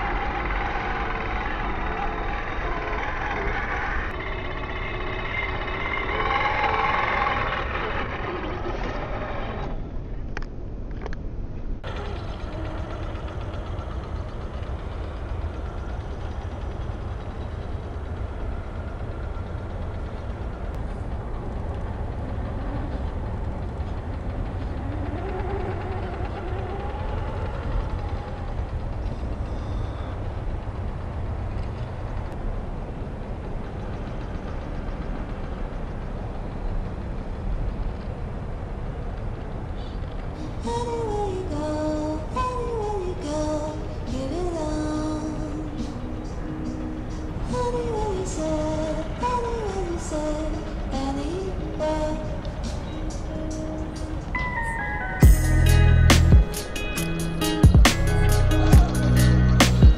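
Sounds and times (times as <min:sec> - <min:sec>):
toy car electric motor whining: 0:00.0 - 0:09.8, 0:11.8 - 0:20.2, 0:24.4 - 0:30.2
electric motor and gear whine: 0:00.0 - 0:11.2, 0:11.8 - 0:59.9
steady low rumble: 0:00.0 - 0:59.9.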